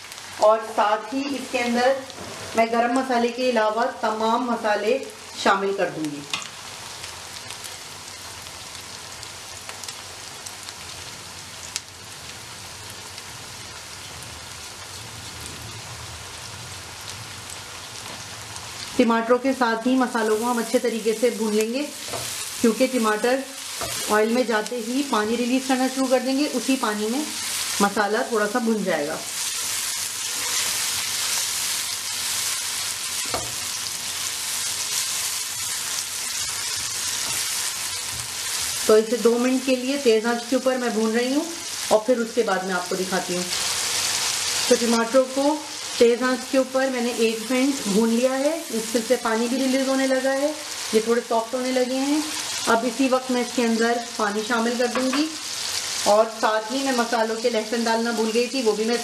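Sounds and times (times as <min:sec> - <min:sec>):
vegetables sizzling in oil: 0:00.0 - 0:59.0
spatula stirring and scraping: 0:23.7 - 0:24.1, 0:29.4 - 0:31.2.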